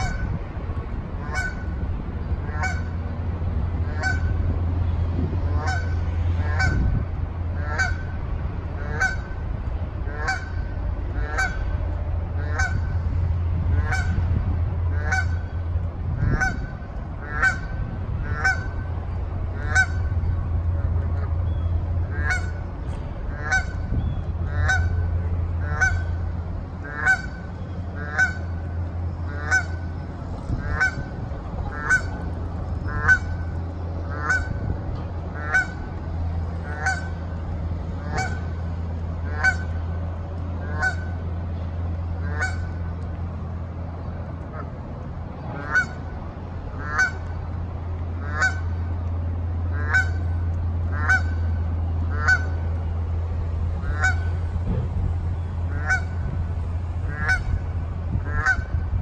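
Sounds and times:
goose honking: 0:00.0 - 0:00.4, 0:01.2 - 0:01.7, 0:02.4 - 0:03.0, 0:03.8 - 0:04.4, 0:05.5 - 0:08.2, 0:08.8 - 0:09.4, 0:10.0 - 0:11.7, 0:12.3 - 0:13.0, 0:13.8 - 0:14.2, 0:14.9 - 0:15.6, 0:16.2 - 0:18.9, 0:19.5 - 0:20.2, 0:22.0 - 0:22.7, 0:23.3 - 0:26.2, 0:26.8 - 0:34.7, 0:35.3 - 0:37.4, 0:38.0 - 0:39.9, 0:40.6 - 0:41.2, 0:42.2 - 0:42.8, 0:45.5 - 0:46.1, 0:46.7 - 0:47.3, 0:48.2 - 0:48.8, 0:49.6 - 0:52.7, 0:53.8 - 0:54.5, 0:55.4 - 0:56.4, 0:57.0 - 0:58.8
steady low rumble: 0:00.0 - 0:59.0.

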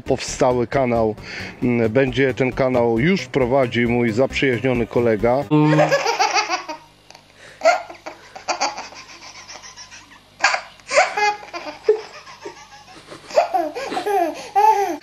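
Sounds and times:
baby laughing: 0:05.5 - 0:06.9, 0:07.6 - 0:15.0.

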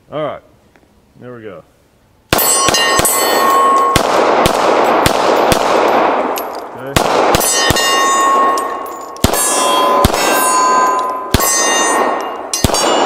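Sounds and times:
pistol shots: 0:02.3 - 0:13.0
steel target clanging and ringing: 0:02.4 - 0:04.0, 0:07.4 - 0:13.0.

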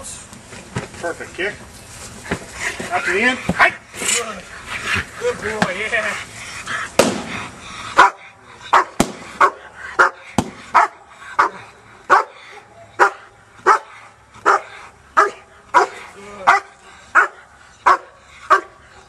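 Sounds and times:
dog barking: 0:08.0 - 0:19.0.

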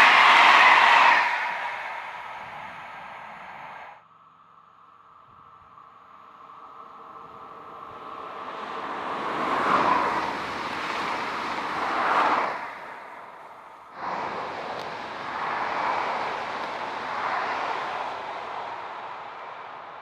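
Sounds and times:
electric train passing: 0:00.0 - 0:04.0, 0:06.9 - 0:13.3, 0:14.0 - 0:19.8
second electric train passing: 0:00.0 - 0:04.0, 0:14.0 - 0:19.8.

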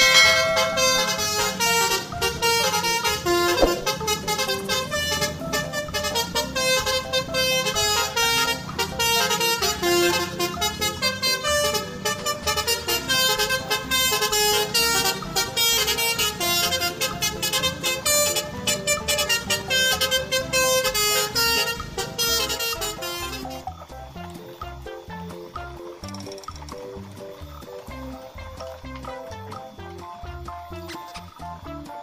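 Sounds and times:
horn-like melody: 0:00.0 - 0:24.3, 0:27.8 - 0:29.0
steady beat: 0:03.6 - 0:04.6.

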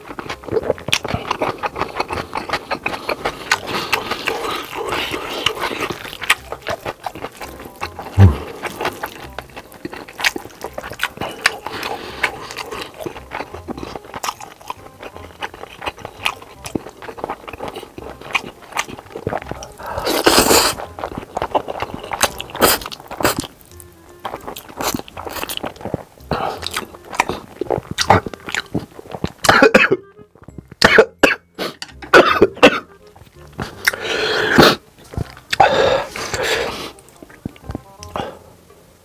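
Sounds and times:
wet chewing and smacking: 0:00.0 - 0:38.2
background music: 0:00.0 - 0:39.0
slurping noodles: 0:18.8 - 0:23.5, 0:33.6 - 0:34.8.

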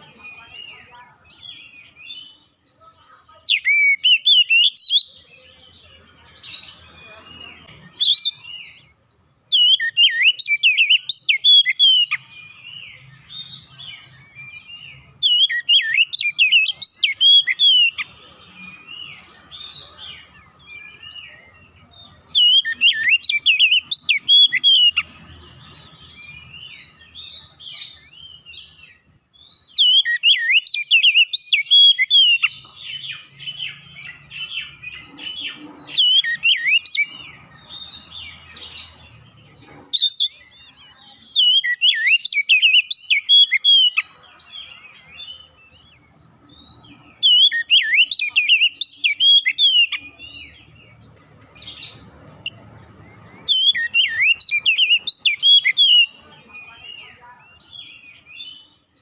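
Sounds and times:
soft bird twittering: 0:00.0 - 0:59.0
bird whistling phrases: 0:03.5 - 0:05.2, 0:15.2 - 0:18.1, 0:22.3 - 0:25.1, 0:29.8 - 0:32.6, 0:35.4 - 0:37.1, 0:41.4 - 0:44.1, 0:47.2 - 0:50.2, 0:53.4 - 0:57.2.

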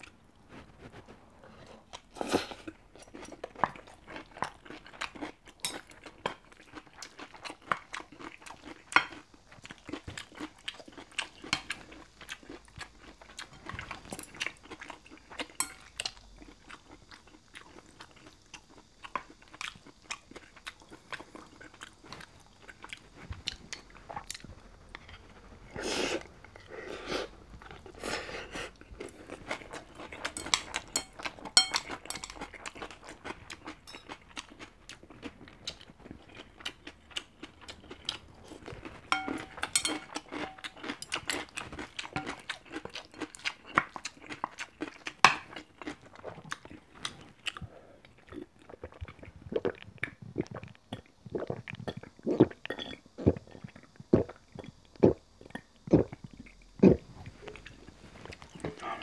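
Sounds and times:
chewing and eating: 0:00.0 - 0:59.0
utensils clicking on ceramic bowl: 0:30.3 - 0:32.4, 0:39.1 - 0:40.7.

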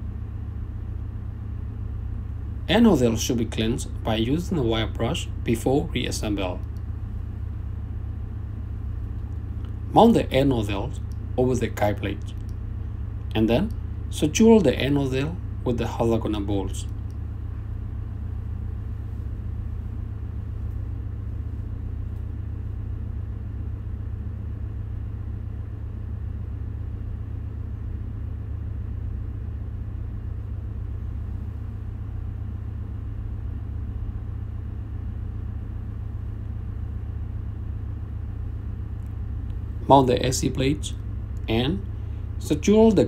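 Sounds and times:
machinery rumbling: 0:00.0 - 0:43.0.

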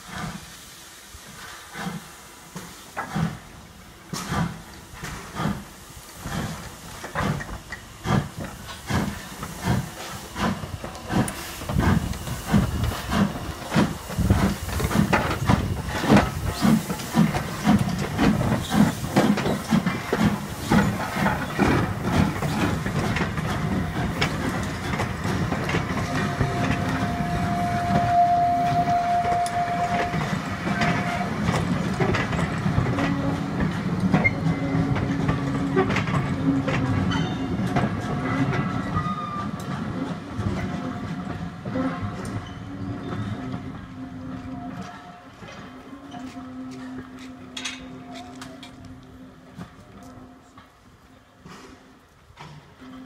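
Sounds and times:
steam locomotive exhaust beats: 0:00.0 - 0:53.0
coach wheels clattering over rail joints: 0:01.3 - 0:53.0.

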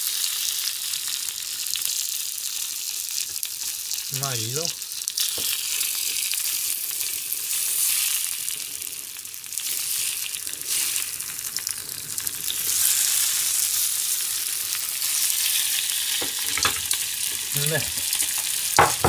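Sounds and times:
eggs sizzling in hot oil: 0:00.0 - 0:19.0
turner scraping a frying pan: 0:16.1 - 0:19.0.

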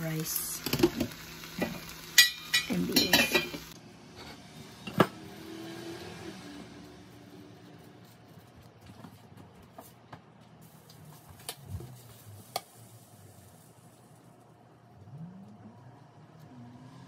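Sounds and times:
tongs clicking against pan and plate: 0:02.1 - 0:03.6.

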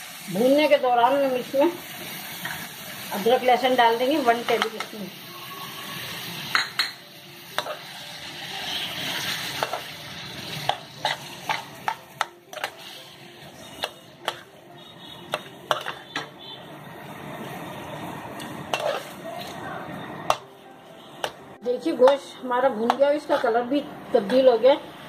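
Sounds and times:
meat sizzling in oil: 0:00.0 - 0:19.6
metal skimmer scraping a wok: 0:12.5 - 0:14.5, 0:15.7 - 0:16.2, 0:18.7 - 0:19.2.

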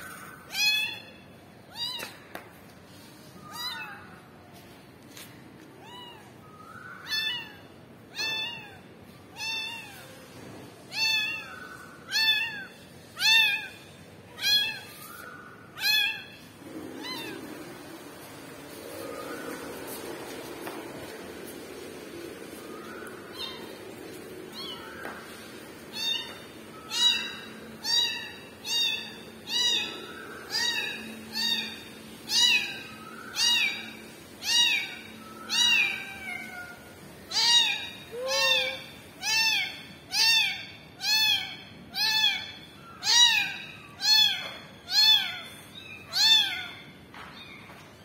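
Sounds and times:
kitten meowing: 0:01.7 - 0:02.3, 0:07.0 - 0:15.2, 0:15.8 - 0:16.4, 0:17.0 - 0:17.5, 0:23.3 - 0:23.8, 0:24.5 - 0:25.0, 0:25.9 - 0:46.8.

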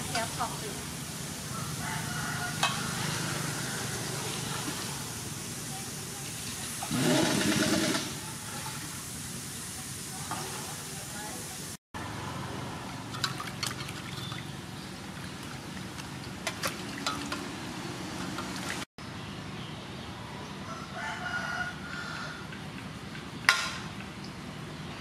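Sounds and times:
rooster crowing: 0:01.5 - 0:04.4, 0:20.6 - 0:22.6
water splashing in basin: 0:06.4 - 0:08.9, 0:12.8 - 0:18.9.

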